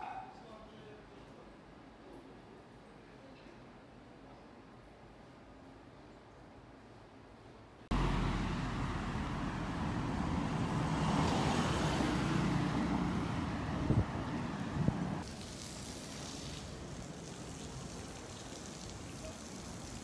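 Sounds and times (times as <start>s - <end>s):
street traffic noise: 7.8s - 20.0s.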